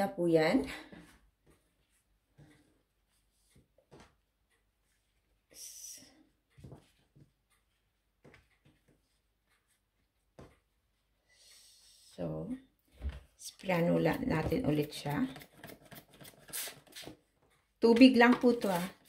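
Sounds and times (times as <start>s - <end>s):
paper towel rustling: 18.4s - 19.0s.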